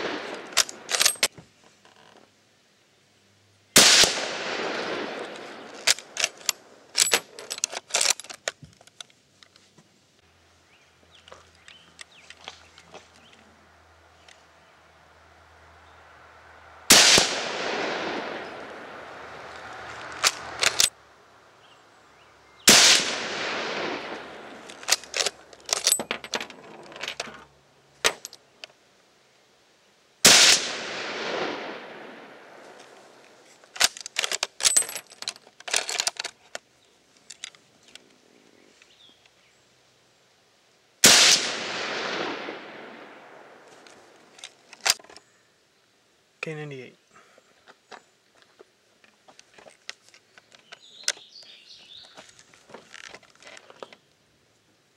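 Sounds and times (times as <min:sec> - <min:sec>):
rifle shots with long echo: 0:00.0 - 0:01.0, 0:03.8 - 0:06.8, 0:16.8 - 0:20.9, 0:22.6 - 0:25.0, 0:30.2 - 0:33.2, 0:41.0 - 0:44.2
rifle bolt metallic clicks: 0:00.2 - 0:01.3, 0:05.2 - 0:09.1, 0:20.0 - 0:21.0, 0:22.7 - 0:27.3.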